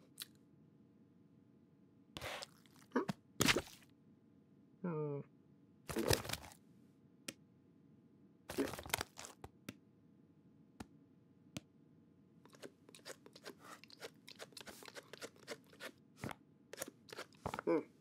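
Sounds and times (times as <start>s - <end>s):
cartoon cat crunching food: 2.2s - 3.8s, 5.9s - 6.6s, 8.5s - 9.5s, 12.5s - 16.0s, 16.8s - 17.6s.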